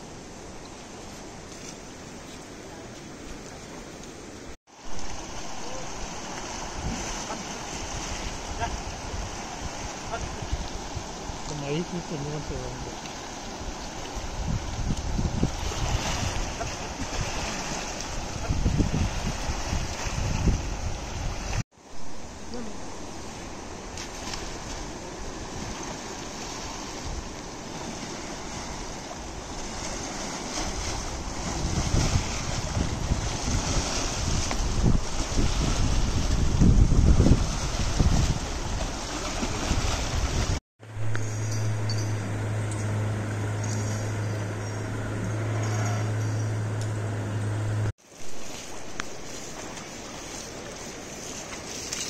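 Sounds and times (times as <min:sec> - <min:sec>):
shallow river water sloshing: 0:00.0 - 0:52.0
wind buffeting microphone: 0:06.5 - 0:21.6, 0:23.5 - 0:40.6
steady low hum: 0:40.8 - 0:47.9.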